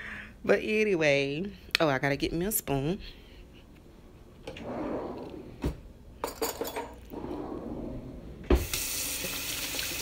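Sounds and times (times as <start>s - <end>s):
dishes and cutlery clinking: 6.2s - 7.1s.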